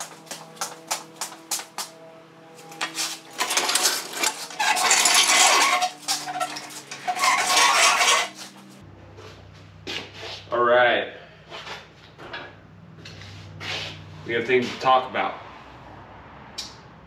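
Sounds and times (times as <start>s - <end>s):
metal pieces clattering: 2.6s - 8.6s.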